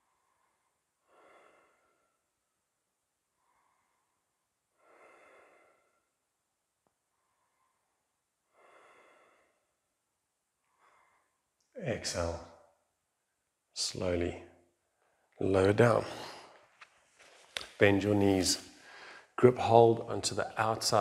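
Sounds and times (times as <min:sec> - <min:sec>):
person breathing deeply: 0:00.0 - 0:02.4, 0:03.3 - 0:06.2, 0:07.1 - 0:09.8, 0:10.6 - 0:11.5, 0:16.0 - 0:16.6, 0:18.8 - 0:19.4.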